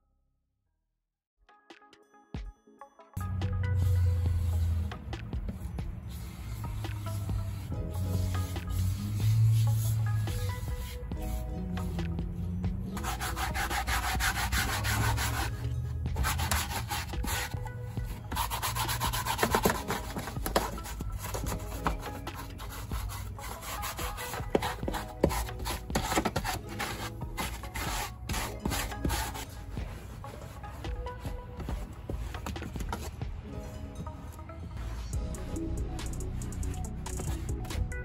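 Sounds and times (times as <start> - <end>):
background music: 1.4 - 38.0
rapid scrubbing strokes: 5.6 - 33.1.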